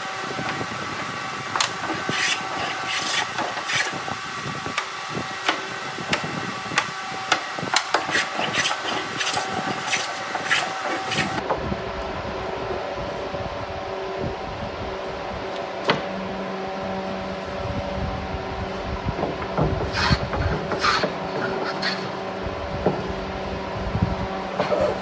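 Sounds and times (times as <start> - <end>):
hand plane shaving wood: 1.6 - 4.1, 7.8 - 11.4, 19.9 - 22.1.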